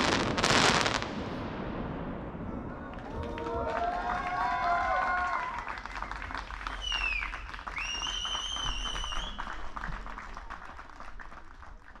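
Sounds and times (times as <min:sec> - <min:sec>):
crowd applauding: 0:02.9 - 0:12.0
whistles from crowd: 0:06.0 - 0:09.6.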